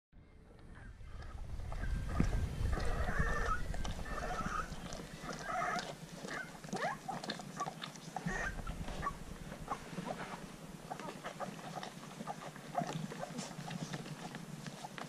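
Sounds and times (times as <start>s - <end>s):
puppies squealing and grunting: 1.2s - 15.0s.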